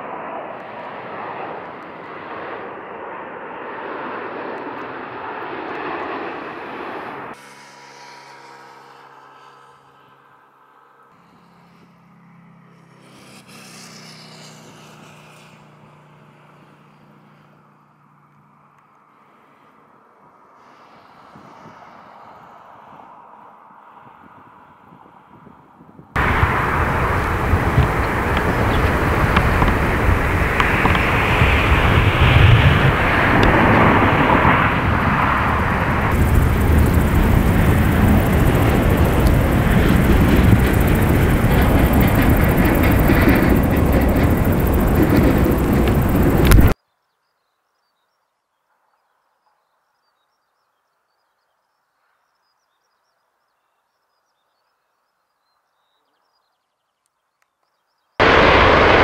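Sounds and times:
jet engines hissing whine: 0.0 - 20.0, 26.2 - 46.8, 58.2 - 59.0
tow tractor high ticking: 26.2 - 32.1, 34.8 - 46.8.

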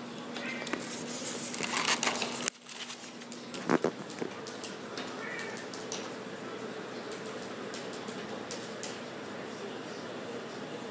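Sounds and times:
packaging rustling and scraping: 0.7 - 3.9.

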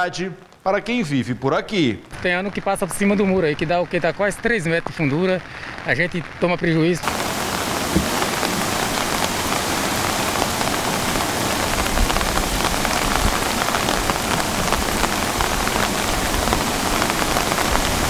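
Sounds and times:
heavy rain falling: 0.0 - 18.0.

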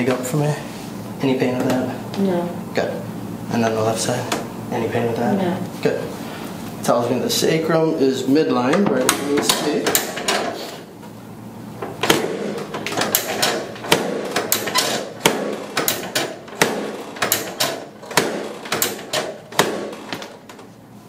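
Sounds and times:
sharp mechanical clicks and knocks: 9.0 - 10.6, 11.9 - 20.7.

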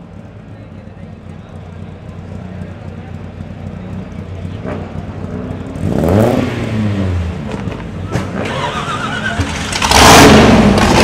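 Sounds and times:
car engine idling and revving: 0.0 - 11.0.

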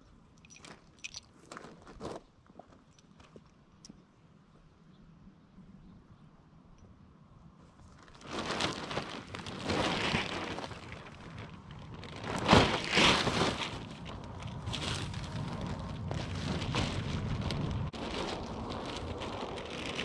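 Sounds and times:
tarp rustling and crinkling: 7.8 - 20.0.

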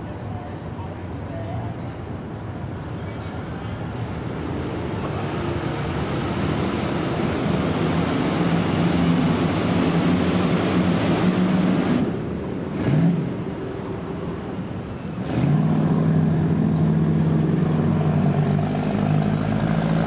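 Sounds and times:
speedboat engine drone: 0.2 - 20.0
rushing spray: 4.6 - 12.2.

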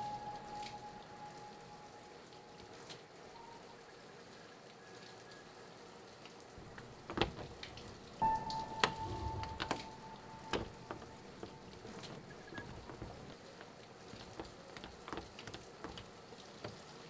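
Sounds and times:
faint held tone of film score: 0.0 - 3.9, 6.6 - 13.4.

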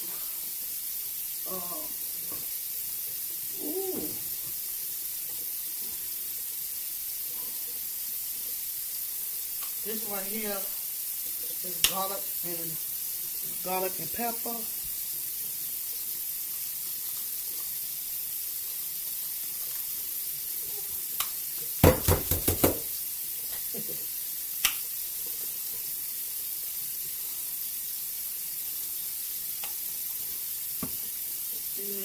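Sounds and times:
steady hiss: 0.0 - 32.0
sharp knocks: 21.8 - 22.8.

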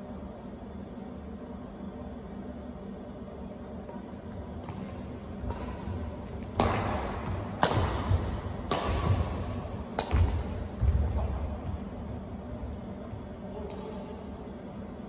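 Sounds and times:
footwork thuds on court: 4.3 - 14.0
badminton racket striking shuttlecock: 4.6 - 11.2.

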